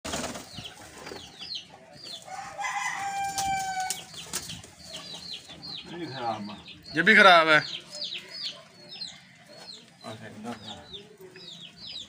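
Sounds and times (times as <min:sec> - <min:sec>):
pigeons flapping wings: 0:00.1 - 0:01.2
rooster crowing: 0:02.3 - 0:04.0.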